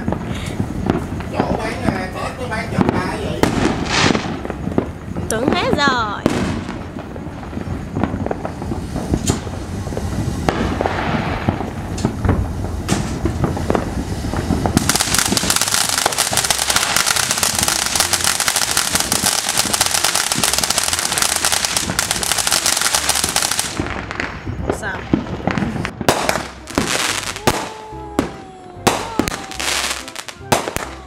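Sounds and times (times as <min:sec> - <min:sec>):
fireworks fountain hissing and crackling: 0:00.0 - 0:31.0.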